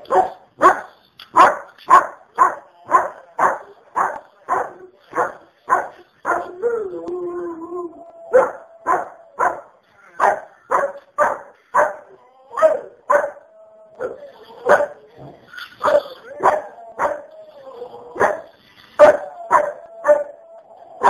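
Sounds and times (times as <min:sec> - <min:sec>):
dog barking: 0:00.0 - 0:06.5, 0:08.4 - 0:13.4
dog howling: 0:06.3 - 0:09.8, 0:12.1 - 0:15.0, 0:16.2 - 0:21.0.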